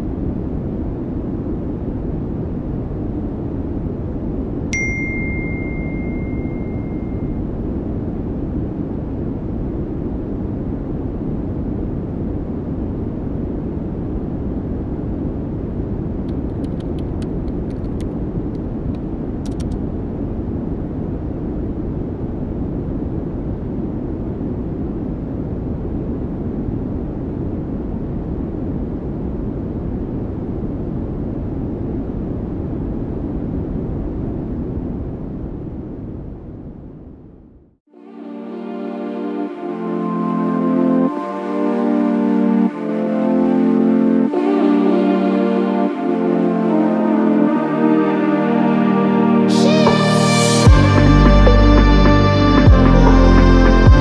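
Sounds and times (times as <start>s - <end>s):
chime ringing: 4.8s - 7.4s
faint keyboard clicks: 16.3s - 19.8s
steady low rumbling: 49.6s - 54.0s.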